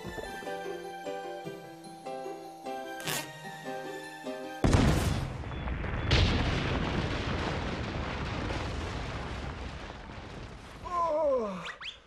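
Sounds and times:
cartoon explosion blast: 0:04.6 - 0:10.0.

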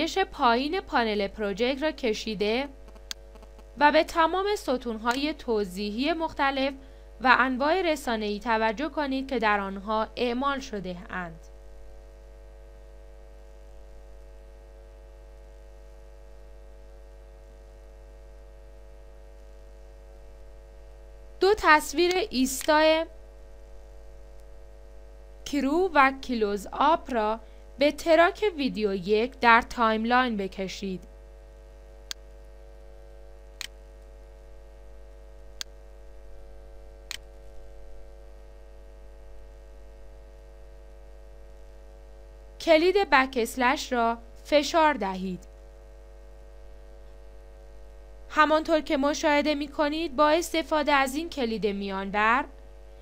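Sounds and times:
electrical hum: 0:00.0 - 0:53.0
computer mouse clicks: 0:02.8 - 0:03.7, 0:33.6 - 0:34.1.

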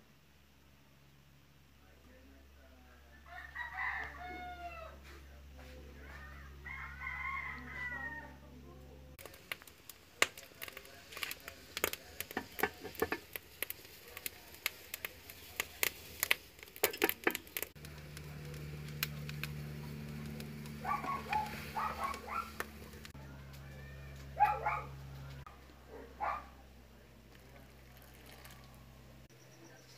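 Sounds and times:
sharp irregular clicks and pops: 0:09.2 - 0:21.4
steady low hum: 0:17.6 - 0:23.5.

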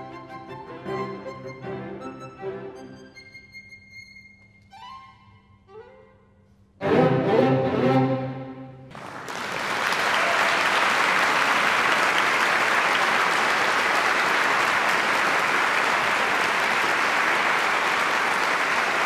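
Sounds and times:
audience applauding: 0:08.9 - 0:19.0.

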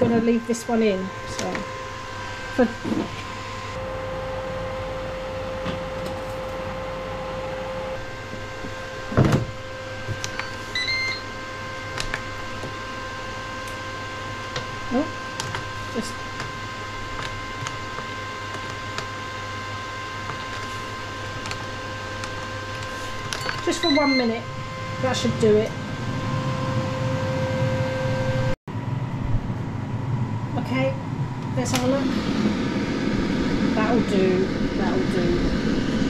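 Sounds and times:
air fryer whine: 0:00.0 - 0:36.0
short electronic beeps: 0:23.4 - 0:24.4.

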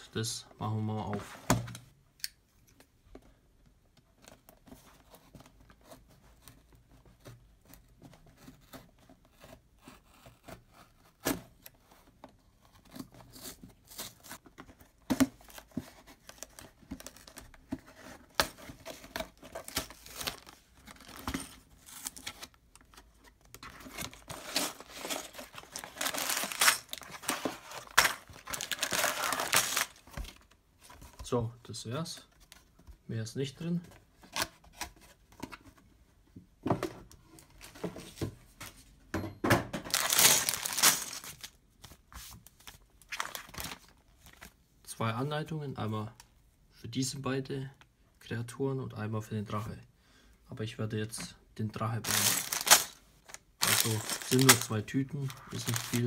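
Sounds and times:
cardboard tearing and rustling: 0:15.1 - 0:30.5, 0:39.9 - 0:41.6, 0:43.0 - 0:43.9, 0:52.0 - 0:56.0.

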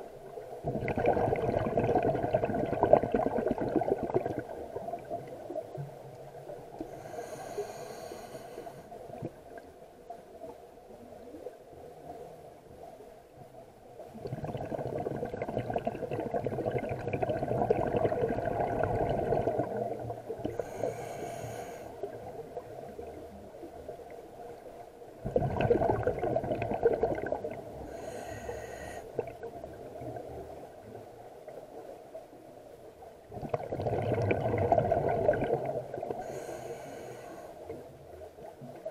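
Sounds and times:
rush of exhaled bubbles: 0:00.6 - 0:05.8, 0:14.1 - 0:22.2, 0:25.2 - 0:30.4, 0:33.3 - 0:36.7
hissing regulator inhalations: 0:06.8 - 0:09.0, 0:20.4 - 0:22.0, 0:27.8 - 0:29.2, 0:36.2 - 0:37.7.

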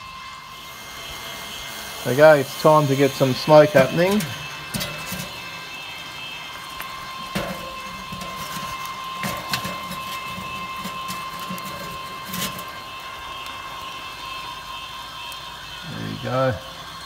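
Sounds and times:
rotisserie motor running: 0:00.0 - 0:17.0
wood knocking on coals: 0:03.4 - 0:13.6.

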